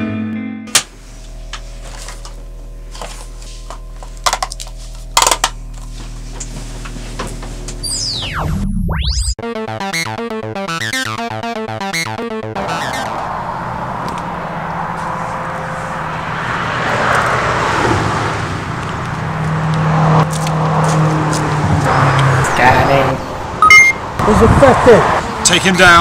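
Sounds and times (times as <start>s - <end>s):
synth pitch glide: 7.8s - 16.4s
fast pulsing synth pattern: 7.9s - 13.6s
low synth drone: 7.9s - 16.6s.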